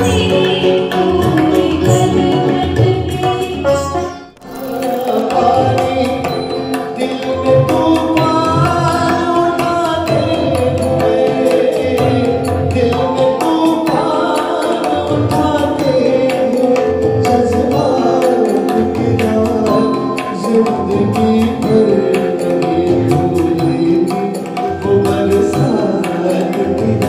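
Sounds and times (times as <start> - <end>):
tabla: 0.0 - 27.0
band playing: 1.0 - 16.2
man singing: 4.4 - 27.0.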